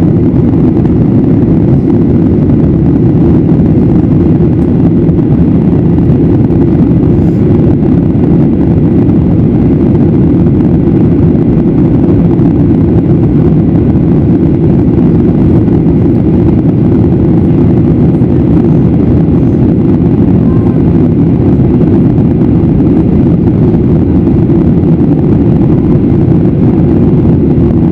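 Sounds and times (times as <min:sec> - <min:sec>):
jet engine rumble in cabin: 0:00.0 - 0:27.9.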